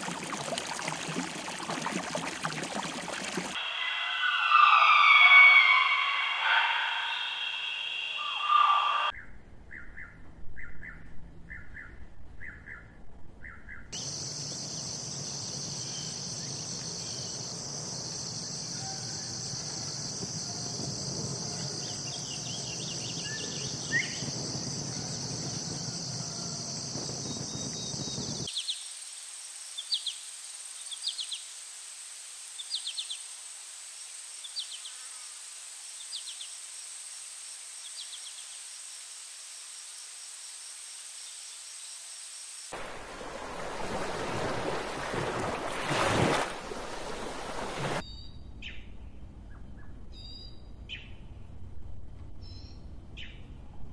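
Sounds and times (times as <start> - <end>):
insect chirps: 0.0 - 9.1, 14.0 - 48.3
high insect drone: 3.6 - 9.1, 14.0 - 47.9
short pulsing calls: 3.6 - 9.1.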